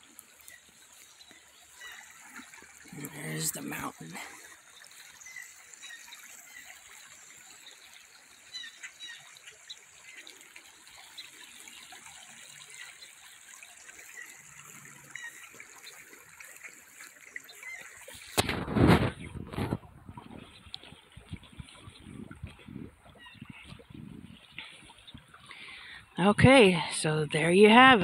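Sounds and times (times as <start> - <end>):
river rushing over stones: 1.7 - 4.7
wind noise on microphone: 18.1 - 25.4.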